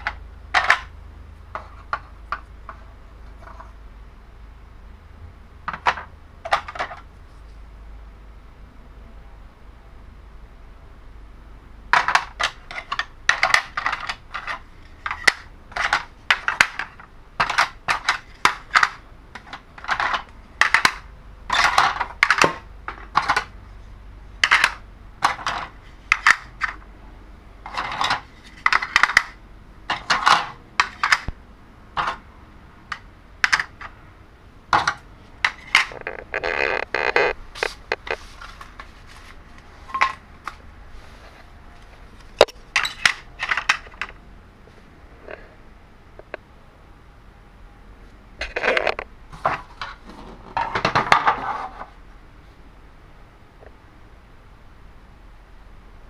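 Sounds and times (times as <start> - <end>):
plastic game pieces clacking: 0.0 - 0.9, 11.9 - 23.5, 24.4 - 26.8, 27.6 - 31.3, 34.8 - 38.2.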